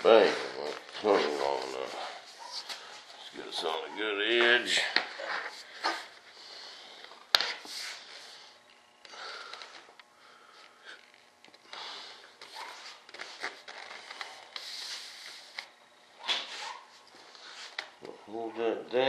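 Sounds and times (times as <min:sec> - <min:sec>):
plastic sheet rustling and scraping: 0:00.0 - 0:03.4.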